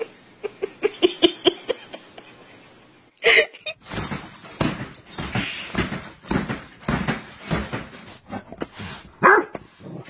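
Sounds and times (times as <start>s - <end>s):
rustling and scuffling: 3.8s - 10.0s.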